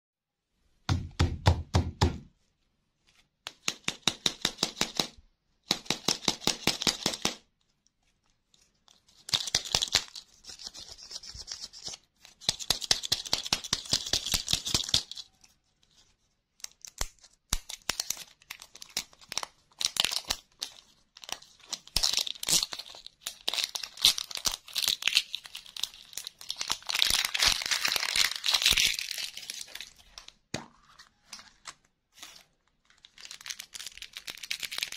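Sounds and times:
plastic crinkling and tearing: 16.6s - 30.4s, 31.1s - 34.9s.

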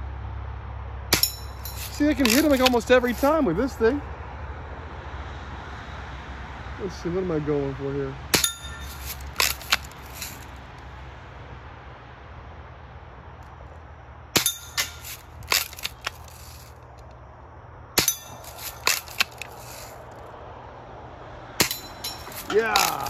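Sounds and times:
bbs pinging on steel targets: 1.1s - 3.3s, 8.4s - 10.4s, 14.4s - 16.7s, 18.0s - 19.9s, 21.6s - 23.0s.

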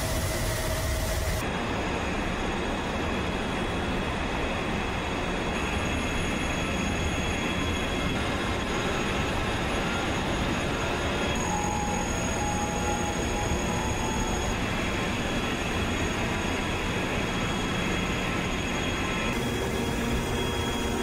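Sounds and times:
machinery running: 11.1s - 21.0s
faint high-pitched tones: 11.4s - 14.8s.

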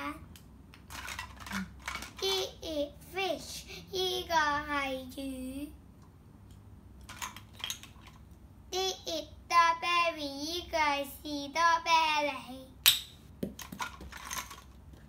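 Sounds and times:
plastic toys clicking: 0.3s - 2.3s
girl speaking sing-song: 2.6s - 5.8s.

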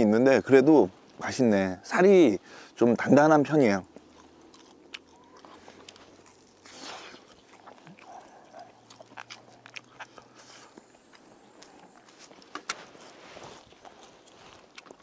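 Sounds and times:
person chewing: 3.5s - 15.0s.

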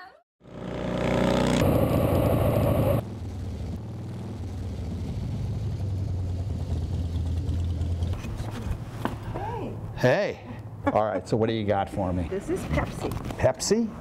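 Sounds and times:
motorcycle riding by: 0.4s - 8.9s.

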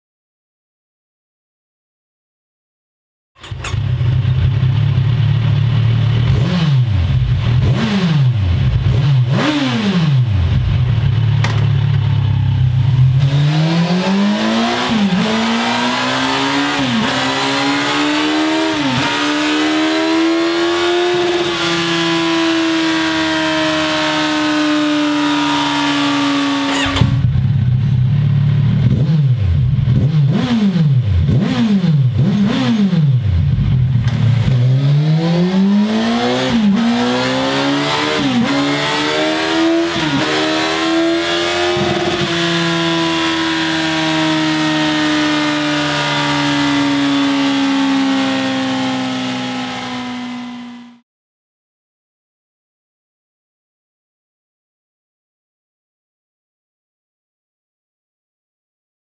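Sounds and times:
motorcycle engine revving: 3.4s - 51.0s
motorcycle throttle blips: 10.5s - 13.4s, 25.5s - 30.5s.

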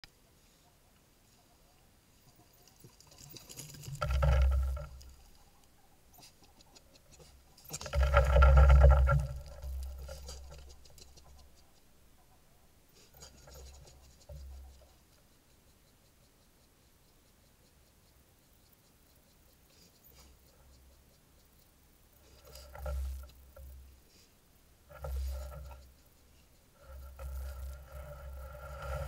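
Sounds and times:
scraping and bumping on camera housing: 7.2s - 11.3s.

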